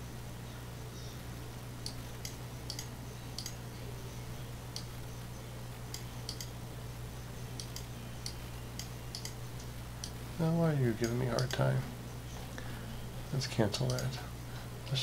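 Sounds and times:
steady low hum: 0.0s - 15.0s
computer mouse clicks: 1.8s - 3.6s, 4.7s - 5.0s, 5.9s - 6.6s, 7.6s - 10.2s, 11.0s - 11.6s, 13.8s - 14.1s.

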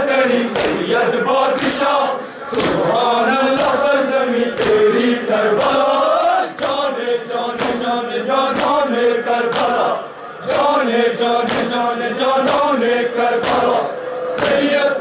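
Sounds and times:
men chanting in unison: 0.0s - 15.0s
hands slapping on chests: 0.5s - 0.8s, 2.5s - 2.9s, 3.5s - 3.8s, 4.5s - 4.8s, 5.6s - 5.9s, 6.6s - 6.9s, 7.5s - 8.9s, 9.5s - 10.8s, 11.4s - 11.8s, 12.4s - 12.7s, 13.4s - 13.8s.

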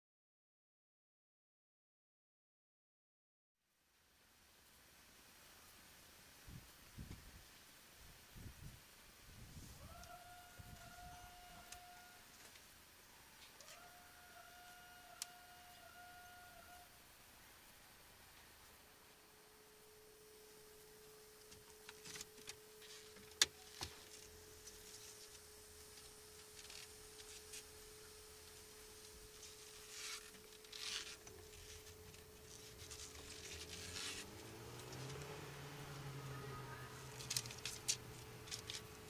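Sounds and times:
low engine drone: 27.8s - 39.0s.

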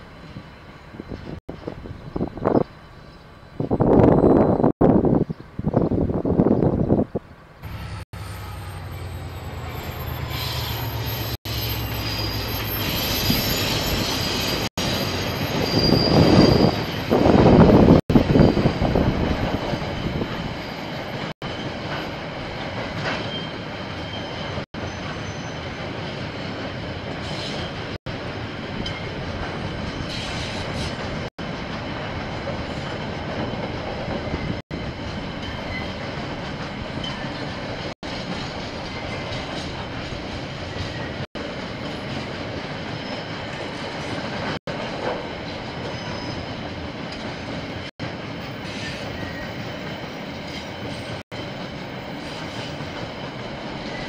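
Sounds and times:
high wheel squeal: 3.8s - 4.7s, 7.7s - 17.3s, 23.2s - 25.8s, 45.8s - 46.6s, 48.6s - 49.8s
diesel locomotive engines humming: 7.6s - 12.7s.

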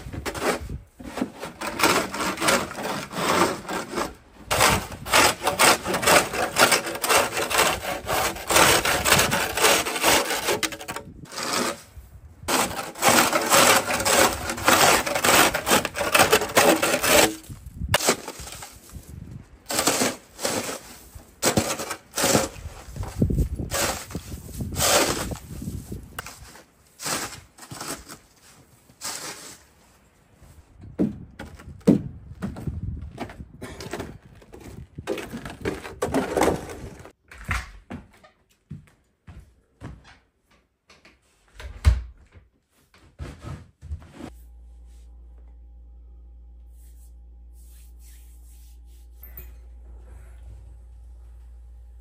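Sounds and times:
snow shovel scraping wooden deck: 0.0s - 19.1s, 19.7s - 29.7s.

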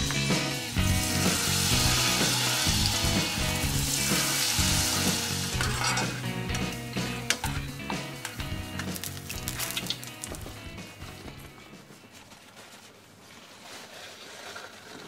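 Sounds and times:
batter deep-frying in oil: 0.0s - 6.6s, 8.8s - 10.4s.

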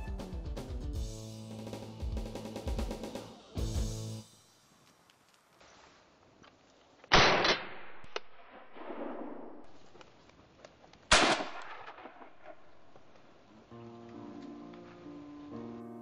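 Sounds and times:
shotgun shots echoing: 7.1s - 9.8s, 11.1s - 13.1s.

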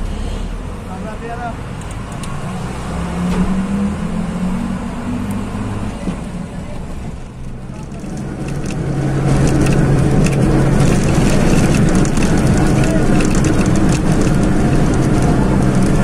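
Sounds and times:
bus engine drone: 0.0s - 16.0s
road noise: 0.0s - 16.0s
light rattles and clicks: 6.0s - 16.0s.

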